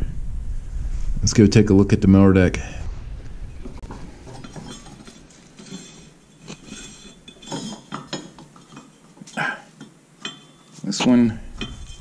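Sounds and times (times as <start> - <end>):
low scraping of pulley: 3.6 - 9.5
metallic clinks and rattles: 3.6 - 12.0.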